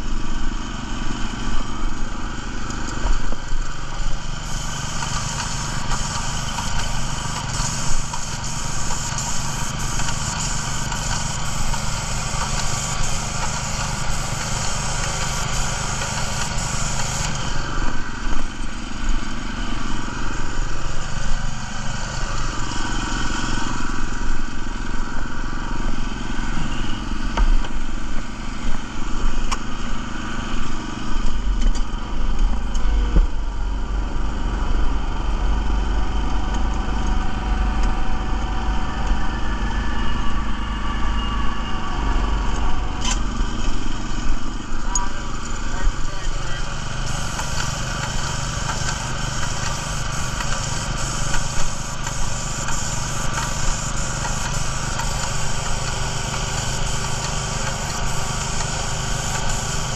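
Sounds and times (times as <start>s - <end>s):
small gasoline engine running: 0.0s - 59.9s
spray gun hissing: 3.8s - 24.2s, 42.8s - 59.9s.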